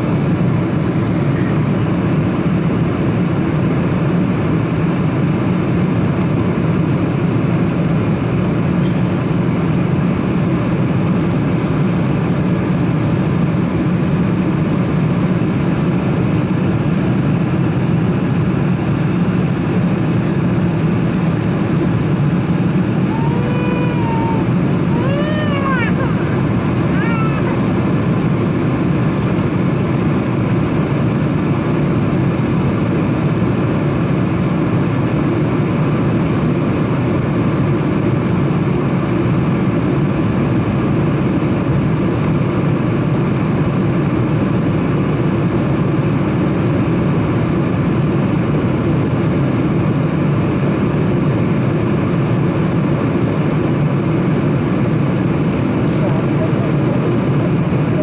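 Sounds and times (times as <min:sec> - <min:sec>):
airliner cabin engine rumble: 0:00.0 - 0:58.0
short high-pitched cries: 0:23.1 - 0:26.4.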